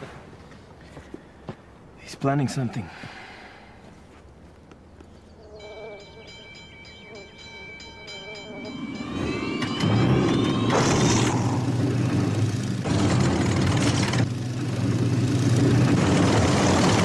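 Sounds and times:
aircraft piston engine starting: 9.0s - 17.0s.

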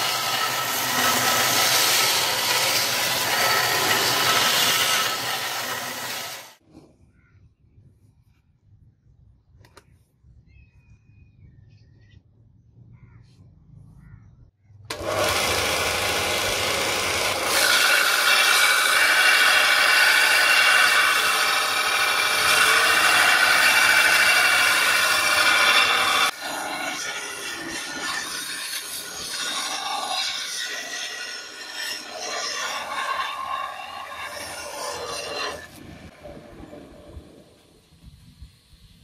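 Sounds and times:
belt grinder grinding steel: 0.0s - 6.6s, 14.9s - 36.1s.

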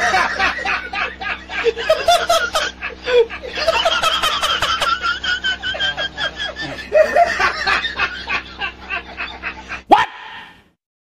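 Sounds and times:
man cackling laughter: 0.0s - 10.6s.

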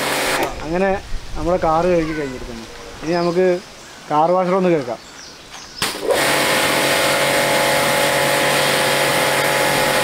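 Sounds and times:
pressure washer motor running: 0.0s - 0.6s, 5.8s - 10.0s
high-pressure water jet hissing: 0.0s - 0.9s, 5.8s - 10.0s.

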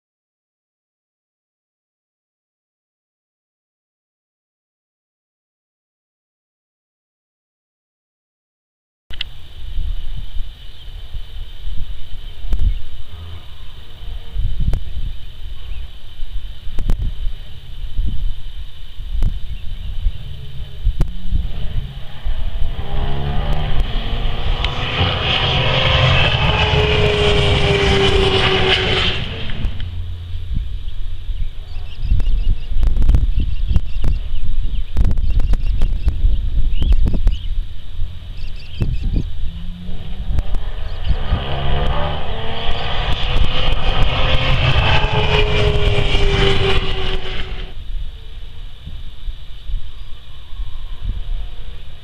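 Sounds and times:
race car engine passing by: 19.9s - 32.1s, 37.7s - 47.9s.

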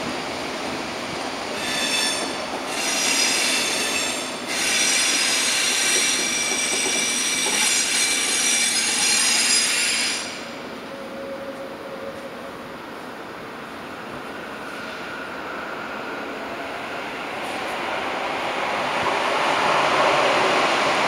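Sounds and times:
train wheels squealing: 1.6s - 12.4s.

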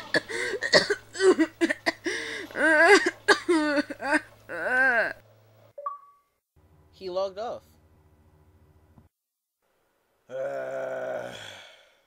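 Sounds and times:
faint steady hum: 0.0s - 11.9s
boy crying and wailing: 2.6s - 5.2s.

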